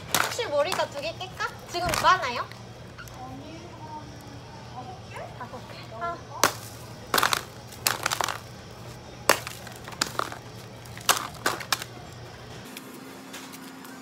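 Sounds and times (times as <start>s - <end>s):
hammer cracking dry ice: 0.0s - 1.0s, 6.4s - 12.2s.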